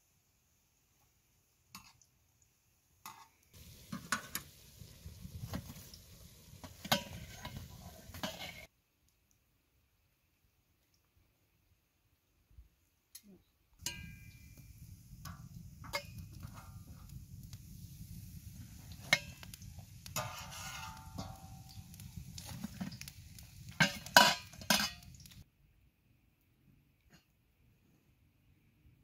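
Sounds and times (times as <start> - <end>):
utensils knocking and scraping pot: 3.1 - 6.0, 6.6 - 8.7, 13.8 - 17.2, 18.6 - 25.4.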